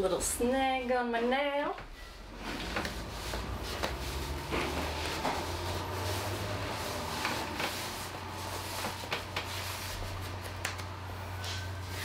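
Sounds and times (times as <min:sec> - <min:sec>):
fabric rustling and scratching: 0:02.1 - 0:10.9.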